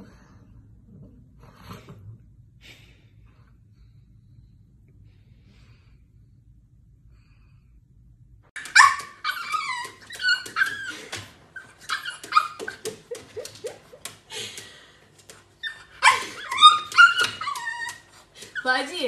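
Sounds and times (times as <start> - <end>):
puppy whining and yapping: 8.6 - 14.2, 15.3 - 18.8.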